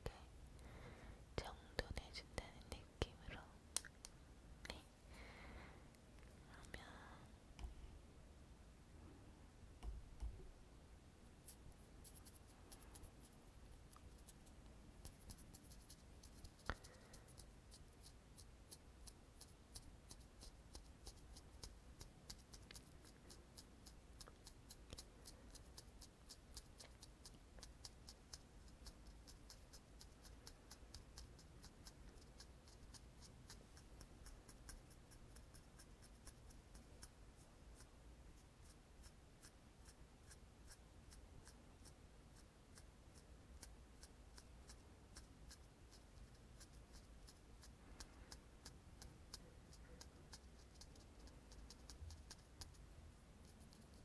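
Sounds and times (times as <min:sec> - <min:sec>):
makeup tool scratching: 0:11.5 - 0:37.1, 0:43.6 - 0:52.8.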